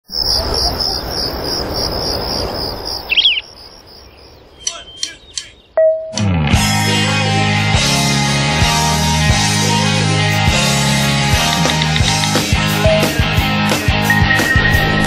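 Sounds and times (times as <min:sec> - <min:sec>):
crickets trilling: 0:00.0 - 0:05.8
bird chirp: 0:00.1 - 0:06.2
music: 0:06.2 - 0:15.0.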